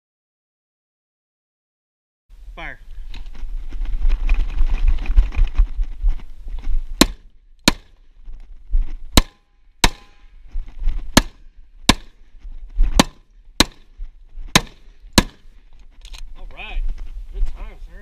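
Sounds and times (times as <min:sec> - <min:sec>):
gunshots fired in pairs: 0:14.6 - 0:15.4.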